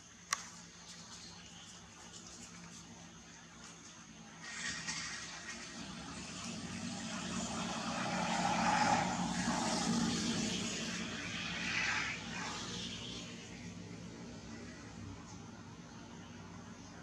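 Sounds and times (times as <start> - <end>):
passing motor vehicle: 4.3 - 17.0.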